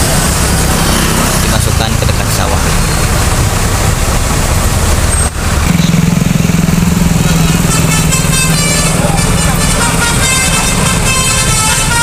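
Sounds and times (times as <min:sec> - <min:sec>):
heavy road traffic passing: 0:00.0 - 0:12.0
low engine drone: 0:00.0 - 0:12.0
short horn toots: 0:07.4 - 0:12.0.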